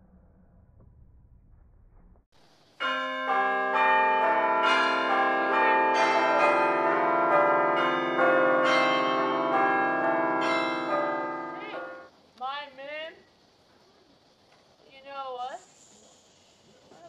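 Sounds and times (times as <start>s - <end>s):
bells ringing: 2.8s - 12.1s.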